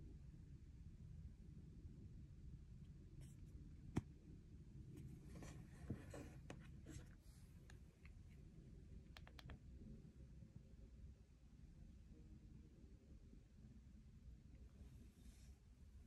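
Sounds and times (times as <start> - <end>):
light rubbing and scraping: 5.0 - 7.5
soft clicks: 9.1 - 9.7.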